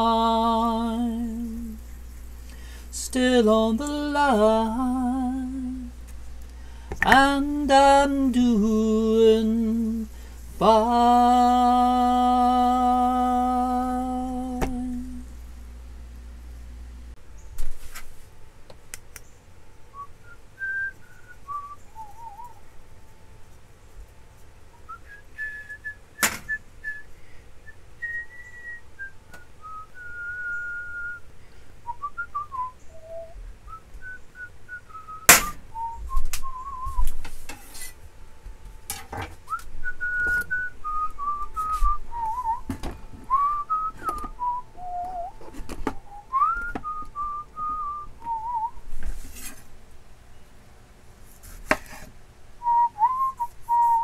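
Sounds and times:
man whistling: 20.0s - 22.6s, 24.9s - 37.2s, 39.5s - 42.7s, 43.3s - 45.4s, 46.0s - 48.8s, 52.6s - 54.0s.

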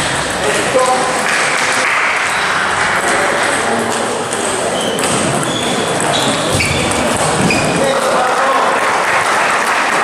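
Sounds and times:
hubbub in sports hall: 0.0s - 10.0s
table tennis balls clicking: 0.8s - 8.4s.

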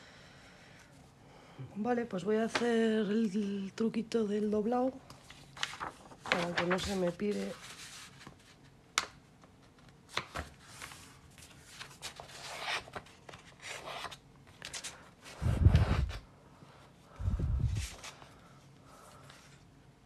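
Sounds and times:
paper rubbing and rustling: 5.2s - 8.7s, 10.1s - 16.2s, 17.6s - 18.3s.

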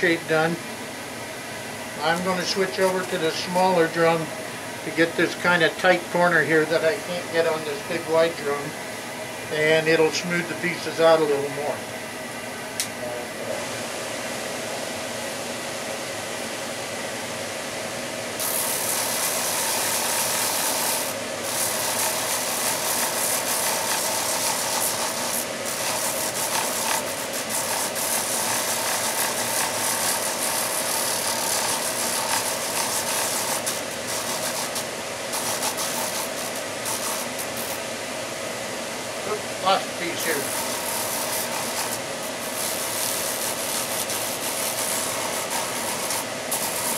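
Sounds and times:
sanding machine humming: 0.0s - 12.2s, 18.1s - 46.9s
wood sanding hiss: 18.4s - 37.8s, 39.3s - 46.9s.

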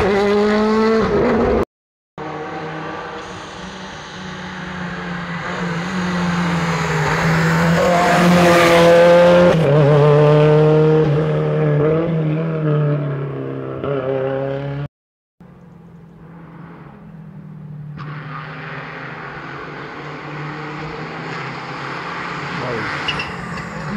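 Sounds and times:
rally car engine revving past: 2.2s - 14.9s, 17.9s - 23.9s.

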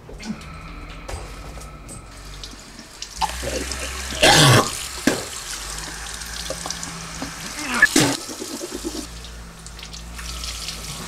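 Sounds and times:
faucet running into basin: 2.2s - 11.0s
water splashing: 2.2s - 11.0s.

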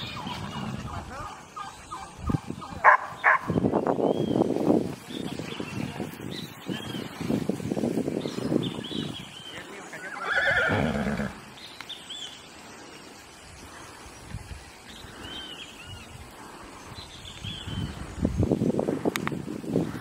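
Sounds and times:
small birds chirping: 0.0s - 20.0s
horse whinnying: 10.0s - 11.4s.

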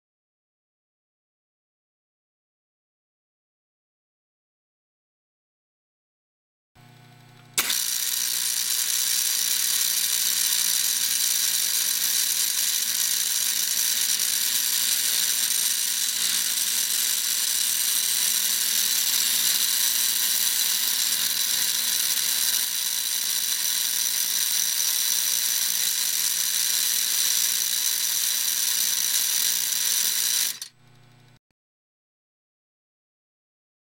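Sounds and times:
low electrical hum: 6.8s - 7.6s, 30.7s - 31.4s
vibrator mechanism buzzing rattle: 6.8s - 31.4s.

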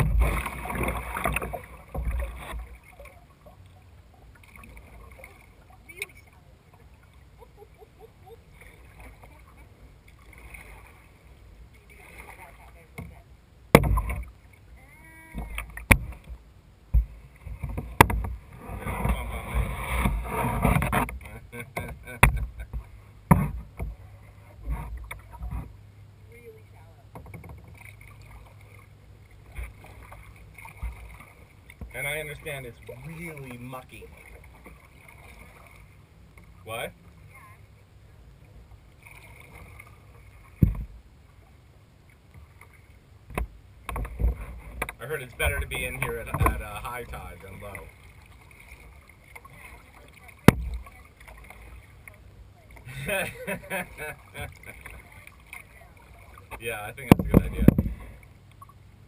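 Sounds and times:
dull thump: 0.0s - 2.7s, 13.0s - 14.3s, 15.4s - 24.0s, 40.6s - 41.0s, 43.3s - 46.6s, 50.4s - 50.8s, 57.0s - 58.1s
paddle knocking on plastic hull: 0.0s - 2.7s, 12.9s - 14.3s, 15.3s - 25.8s, 40.5s - 41.0s, 43.3s - 46.8s, 48.8s - 51.6s, 56.4s - 58.2s
low steady rumble: 0.0s - 59.0s
paddle water wash: 0.0s - 59.0s.

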